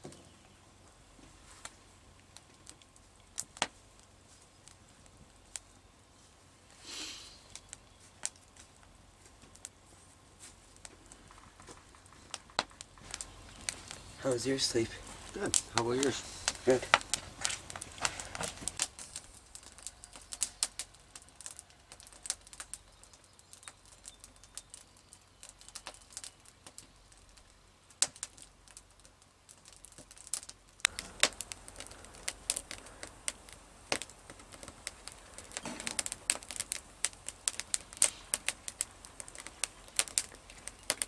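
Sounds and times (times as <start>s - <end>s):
sharp clicks and snaps: 15.3s - 41.0s.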